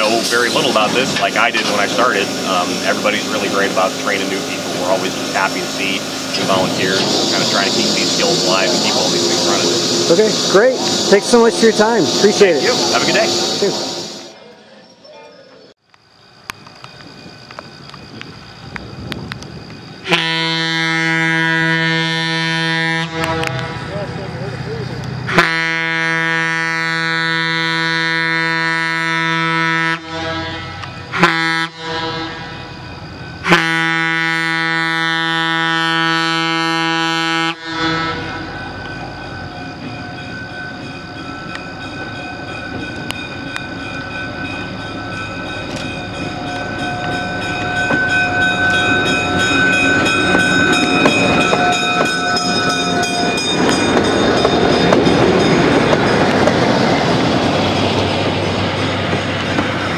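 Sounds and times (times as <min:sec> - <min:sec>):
train clattering over rails: 0:00.0 - 0:14.4, 0:15.5 - 0:59.9
train horn blasts: 0:20.1 - 0:24.1, 0:25.3 - 0:32.8, 0:33.4 - 0:38.6.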